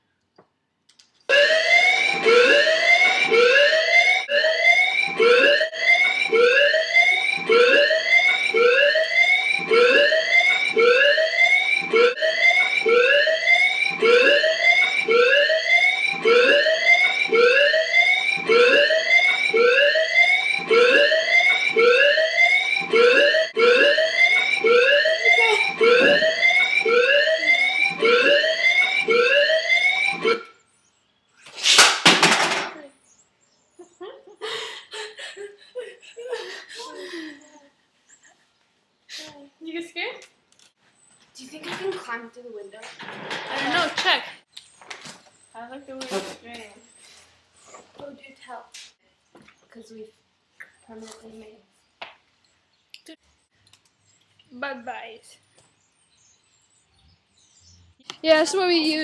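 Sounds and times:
fire alarm siren whooping: 1.3 - 30.6.

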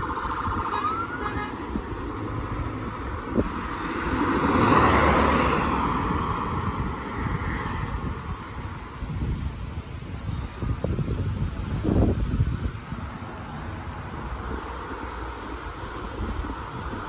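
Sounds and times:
police car driving past: 0.0 - 9.0
rising siren note: 0.1 - 1.6.

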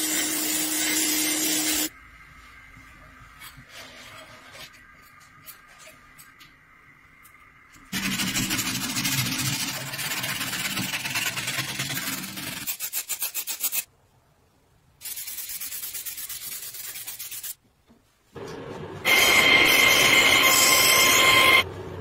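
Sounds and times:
hand sanding scraping: 8.0 - 13.9, 15.0 - 17.6.

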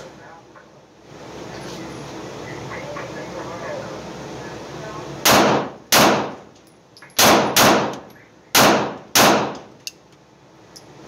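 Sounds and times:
pistol shots echoing indoors: 5.2 - 6.4, 7.2 - 8.0, 8.6 - 9.7.

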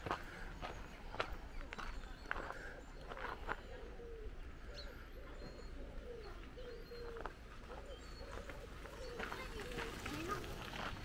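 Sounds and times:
pigeon cooing: 3.2 - 10.5.

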